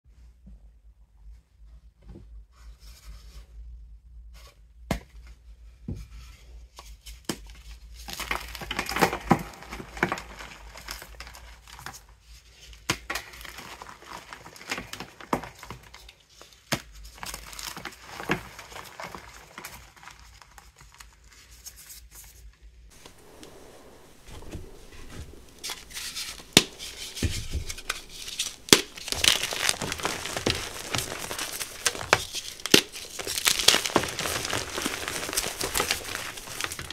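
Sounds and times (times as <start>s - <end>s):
chalk blocks cracking: 22.9s - 36.9s
chalk crunching and crumbling: 22.9s - 36.9s.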